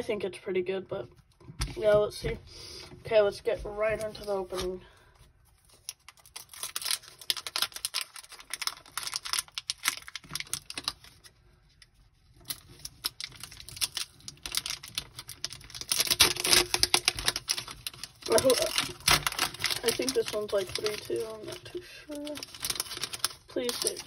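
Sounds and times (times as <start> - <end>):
foil wrapper crinkling and tearing: 4.0 - 24.0.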